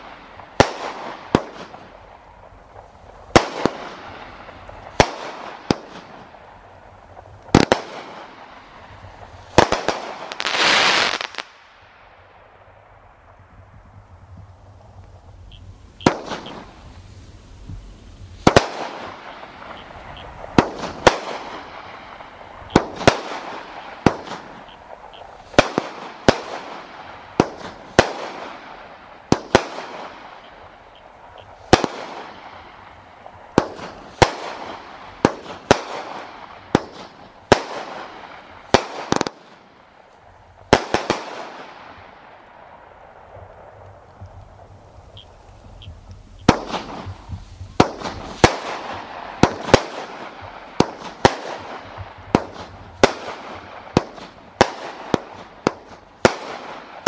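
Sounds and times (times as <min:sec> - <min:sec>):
firework aerial shots banging: 0:16.0 - 0:16.9, 0:18.4 - 0:30.5, 0:31.6 - 0:39.6, 0:45.8 - 0:57.0.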